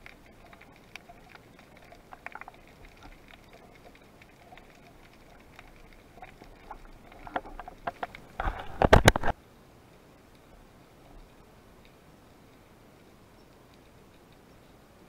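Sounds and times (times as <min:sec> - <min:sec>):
underwater clicks and knocks: 0:00.0 - 0:09.4.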